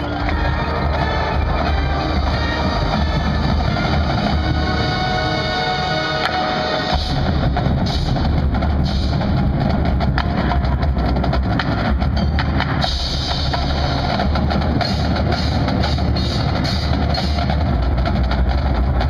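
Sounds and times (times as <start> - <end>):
drums and mallet percussion: 0.0 - 19.0.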